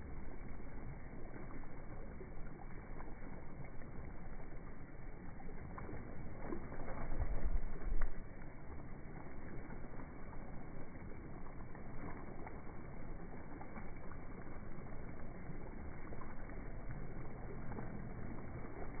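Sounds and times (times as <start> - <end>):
low rumble: 0.0 - 19.0
waves lapping against rocks: 5.2 - 19.0.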